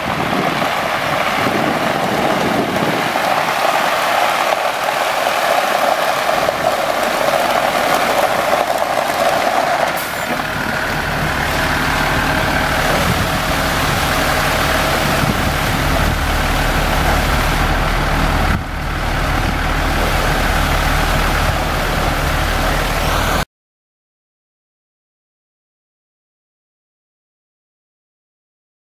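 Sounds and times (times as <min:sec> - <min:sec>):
diesel engine running: 0:00.0 - 0:23.5
water spraying onto gravel: 0:00.2 - 0:23.4.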